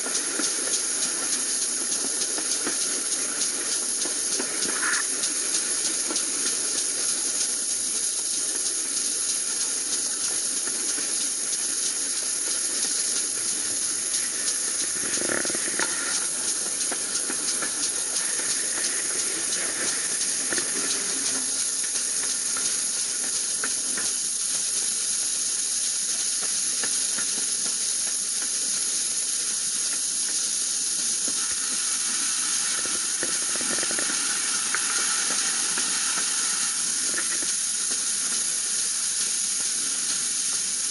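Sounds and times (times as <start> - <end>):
steam hissing: 0.0 - 40.9
train running on rails: 0.0 - 40.9
rushing air: 30.6 - 37.9.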